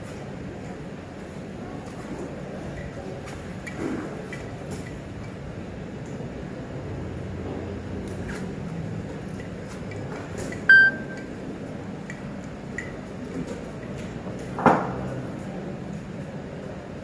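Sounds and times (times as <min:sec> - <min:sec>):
hum of busy hall: 0:00.0 - 0:17.0
loud electronic beep: 0:10.7 - 0:11.2.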